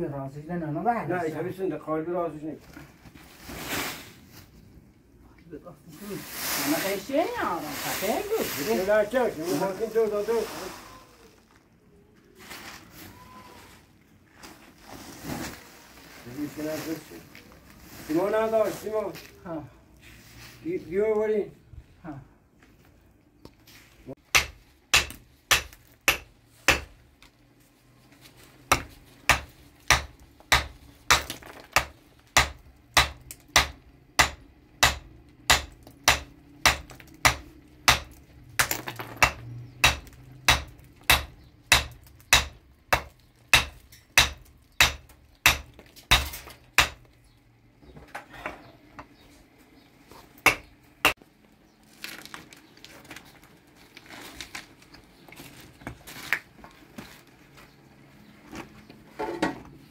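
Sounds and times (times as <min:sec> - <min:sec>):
hammer striking stone: 0:24.3 - 0:27.0, 0:28.7 - 0:47.1, 0:50.5 - 0:51.2.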